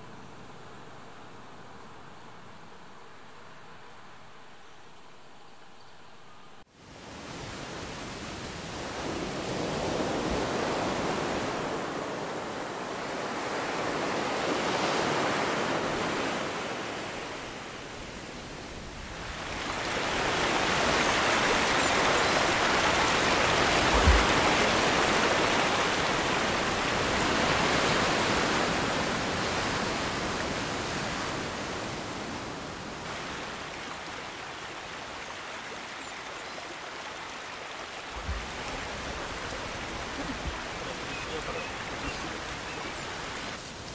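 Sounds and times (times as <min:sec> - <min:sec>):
surf: 0:07.0 - 0:43.9
stream running over stones: 0:17.7 - 0:43.9.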